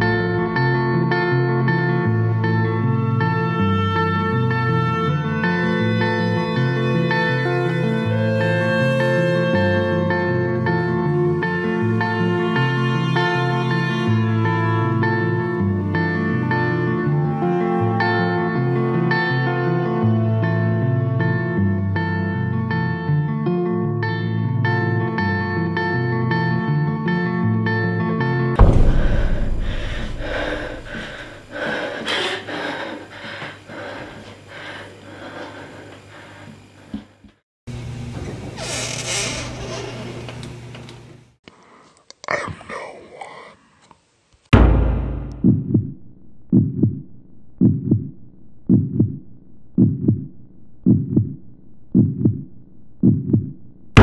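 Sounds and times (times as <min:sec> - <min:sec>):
heartbeat thumps: 0:28.6 - 0:31.9, 0:44.6 - 0:53.6
woman breathing fast and hard: 0:28.9 - 0:37.0.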